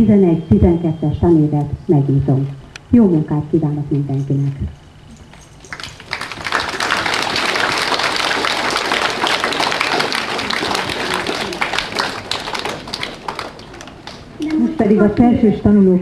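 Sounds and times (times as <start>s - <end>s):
crowd applauding: 5.2s - 14.9s.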